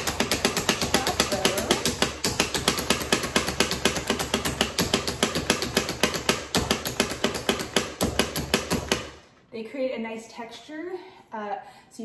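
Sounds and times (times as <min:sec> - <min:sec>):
food chopper clacking: 0:00.0 - 0:09.1.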